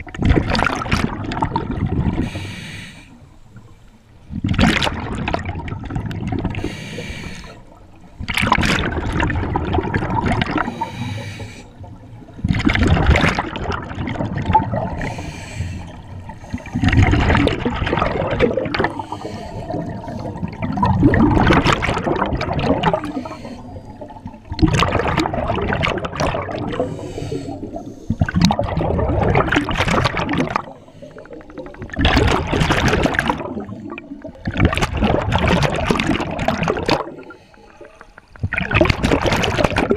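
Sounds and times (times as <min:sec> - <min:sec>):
exhaled bubbles rushing: 0:00.0 - 0:02.4, 0:04.3 - 0:06.8, 0:07.7 - 0:11.1, 0:11.8 - 0:39.9
regulator hiss on inhale: 0:02.2 - 0:04.1, 0:06.6 - 0:07.7, 0:10.6 - 0:11.9, 0:15.0 - 0:16.7, 0:18.9 - 0:20.4, 0:23.0 - 0:24.2, 0:26.8 - 0:28.2, 0:30.6 - 0:31.5, 0:37.2 - 0:38.2.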